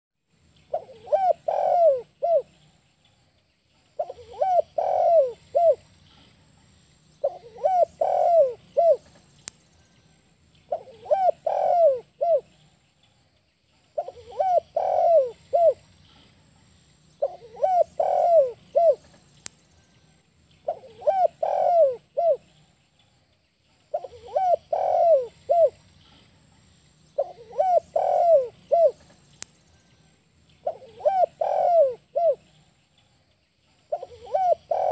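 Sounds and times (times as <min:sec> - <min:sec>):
dove cooing: 0:00.7 - 0:02.6, 0:04.0 - 0:05.8, 0:07.2 - 0:09.2, 0:10.7 - 0:12.5, 0:14.0 - 0:15.8, 0:17.2 - 0:19.2, 0:20.6 - 0:22.5, 0:23.9 - 0:25.8, 0:27.2 - 0:29.1, 0:30.6 - 0:32.6, 0:33.9 - 0:34.9.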